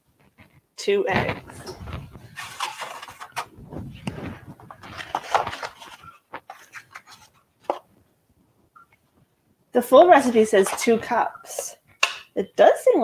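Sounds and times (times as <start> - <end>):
egg carton rustling: 1.2 - 7.9, 10.0 - 11.8.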